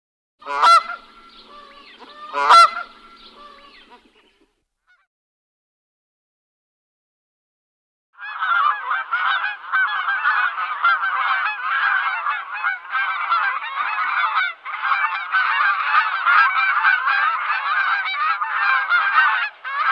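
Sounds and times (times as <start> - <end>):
geese honking: 0.4 - 4.3, 8.2 - 19.9.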